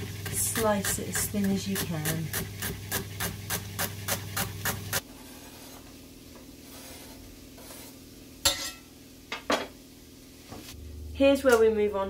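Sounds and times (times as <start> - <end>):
low steady hum: 5.0 - 12.0.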